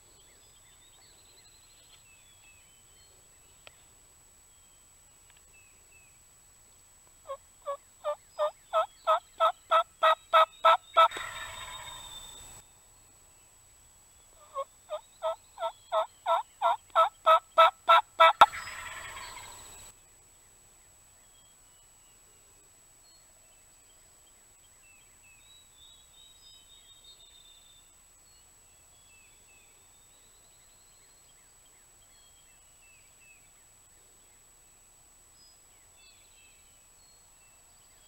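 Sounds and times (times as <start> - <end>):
turkey gobbling: 7.3 - 12.0, 14.4 - 19.6
turkey yelping: 8.0 - 12.0.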